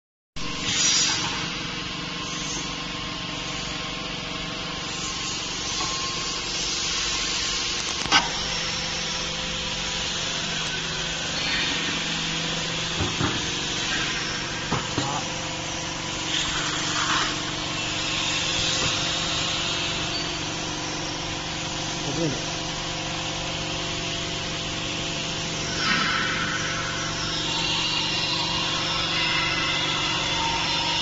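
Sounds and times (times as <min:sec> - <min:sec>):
vacuum fryer machinery hum: 0:00.4 - 0:31.0
hiss: 0:00.6 - 0:01.5, 0:16.3 - 0:20.0, 0:25.6 - 0:31.0.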